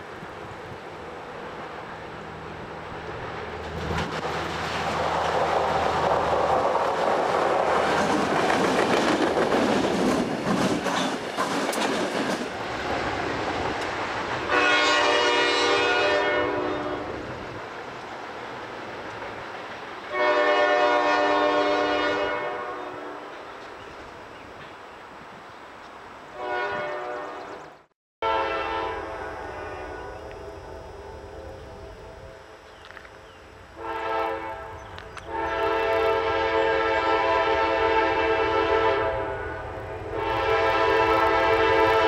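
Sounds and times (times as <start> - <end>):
diesel locomotive engines: 0.0 - 42.0
wheels clicking over rail joints: 3.4 - 14.5
locomotive horn blasts: 14.5 - 17.2, 20.0 - 23.3, 26.3 - 27.4, 28.2 - 32.7, 33.7 - 42.0.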